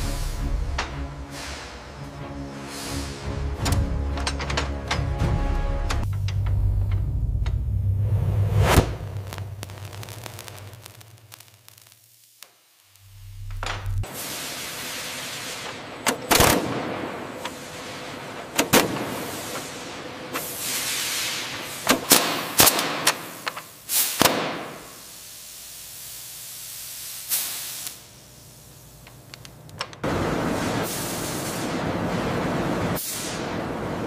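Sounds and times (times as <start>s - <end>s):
hiss of spraying sparks: 1.2s - 2.0s, 8.6s - 15.9s, 17.4s - 29.1s, 30.5s - 31.8s, 33.0s - 33.5s
high-pressure abrasive blasting hiss: 8.7s - 15.9s, 19.0s - 29.0s.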